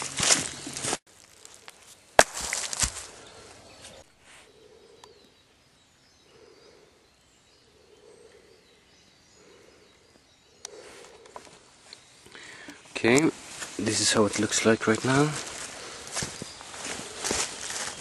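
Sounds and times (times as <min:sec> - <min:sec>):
woodland background: 0:00.0 - 0:18.0
rustling and handling noise: 0:12.7 - 0:18.0.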